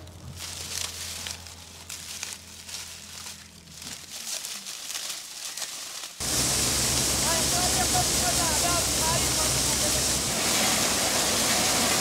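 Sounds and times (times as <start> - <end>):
corn thresher running: 0.0 - 5.6, 6.2 - 12.0
dry corn stalks rustling: 0.0 - 12.0
kernels pouring out: 6.2 - 12.0.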